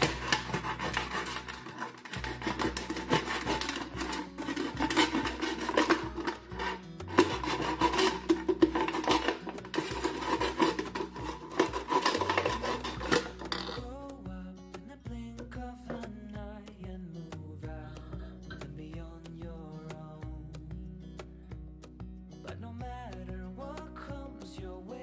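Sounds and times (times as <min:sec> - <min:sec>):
knife sawing through plastic bottle: 0:00.0 - 0:13.8.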